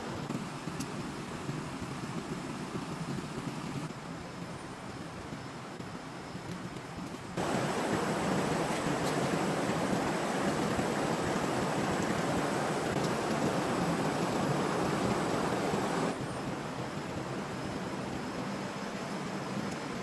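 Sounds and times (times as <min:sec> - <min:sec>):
stream water rushing: 0:07.4 - 0:20.0.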